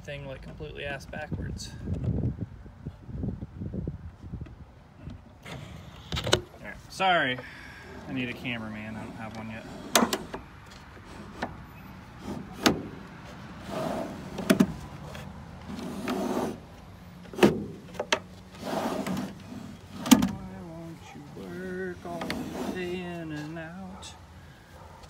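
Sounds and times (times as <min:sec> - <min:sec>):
drawer rolling on ball-bearing slides: 0:07.9 - 0:20.4, 0:22.0 - 0:23.1.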